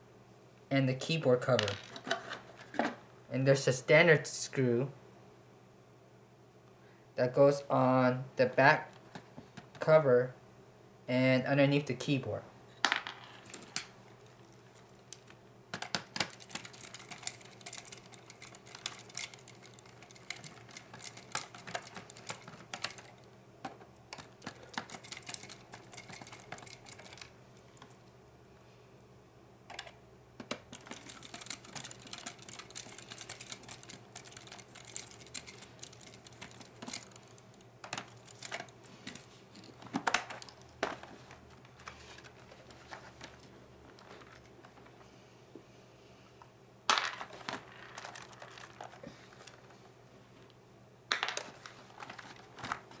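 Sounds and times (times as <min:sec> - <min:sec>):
plastic case handling: 0:15.2 - 0:28.0, 0:29.7 - 0:45.0, 0:46.9 - 0:49.8, 0:51.1 - 0:53.0.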